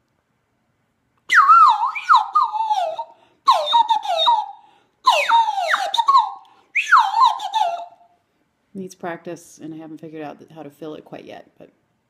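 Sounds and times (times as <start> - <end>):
bird whistle chirping: 1.3 - 8.1.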